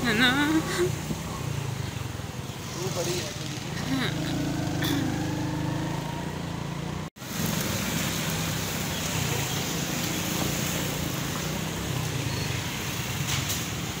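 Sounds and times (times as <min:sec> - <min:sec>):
wind and road noise: 0:00.0 - 0:14.0
motorcycle engine running: 0:01.3 - 0:12.3.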